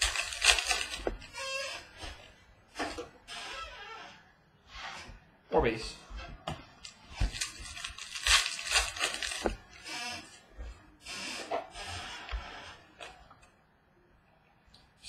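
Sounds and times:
cards rustling: 0.0 - 1.4, 6.8 - 10.4
foil wrapper crinkling and tearing: 0.0 - 1.8, 6.8 - 10.3.

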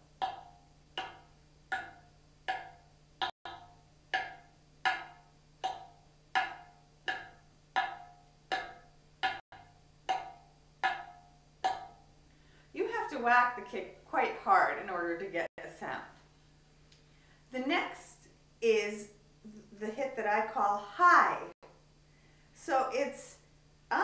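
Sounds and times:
darbuka rim knocks: 0.2 - 12.1.

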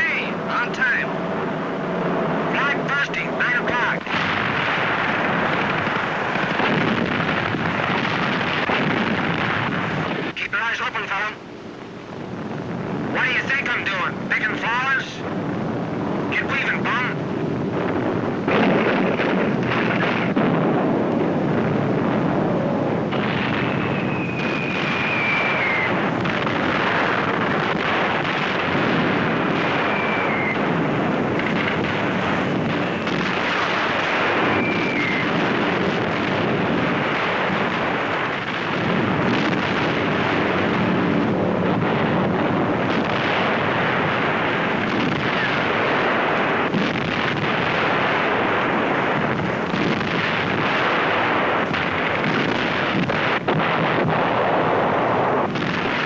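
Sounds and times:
explosions: 0.0 - 56.0
falling bomb whistles: 23.4 - 26.1, 29.7 - 30.8, 34.3 - 35.4.

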